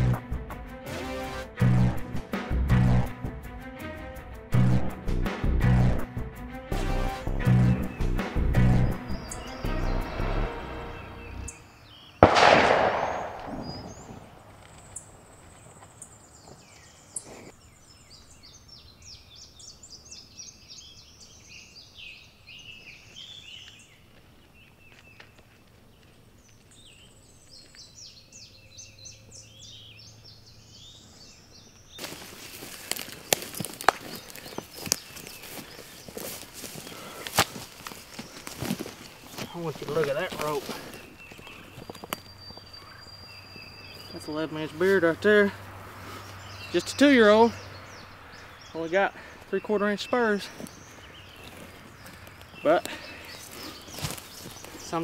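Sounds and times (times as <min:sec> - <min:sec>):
songbirds chirping: 0:07.4 - 0:55.0
shotgun shot: 0:12.2 - 0:14.4.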